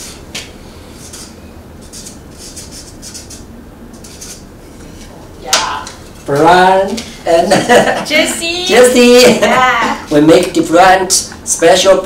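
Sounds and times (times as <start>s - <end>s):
marker scratching on wood: 1.0s - 4.5s.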